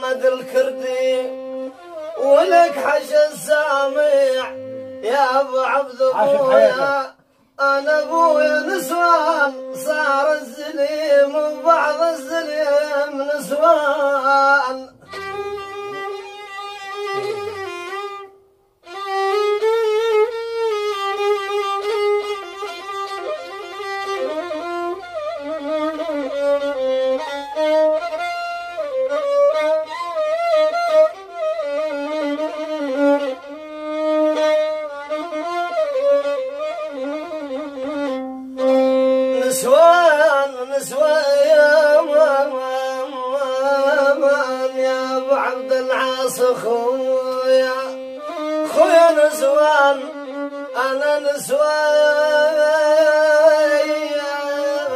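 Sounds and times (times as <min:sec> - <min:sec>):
violin melody: 0:00.0 - 0:54.9.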